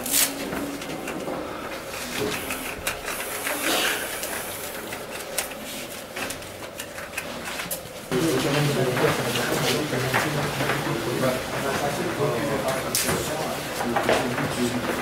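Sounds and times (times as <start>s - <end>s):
tape tearing off roll: 0.0s - 0.4s.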